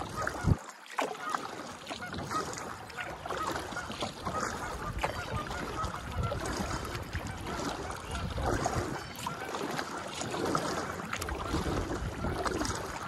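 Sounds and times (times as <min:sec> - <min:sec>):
wind on microphone: 0:00.0 - 0:00.6, 0:04.2 - 0:09.4, 0:10.5 - 0:13.0
paddle dipping in water: 0:00.0 - 0:13.0
water splashing and dripping: 0:00.0 - 0:13.0.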